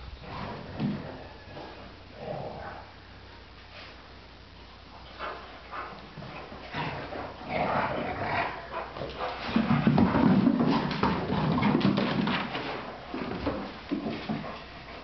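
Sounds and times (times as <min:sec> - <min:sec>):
paws scrabbling on wooden floor: 0:05.0 - 0:15.0.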